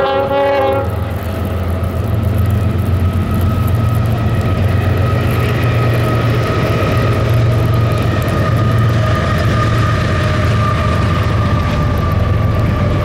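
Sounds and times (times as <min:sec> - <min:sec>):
high-pitched whine: 0:00.0 - 0:13.0
locomotive engine rumble: 0:00.0 - 0:13.0.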